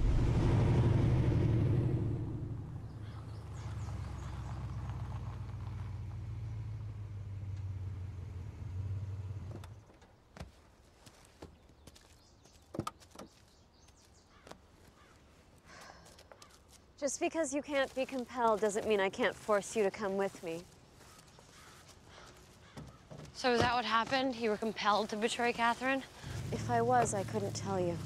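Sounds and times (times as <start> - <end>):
car engine running: 0.0 - 9.8, 24.4 - 28.0.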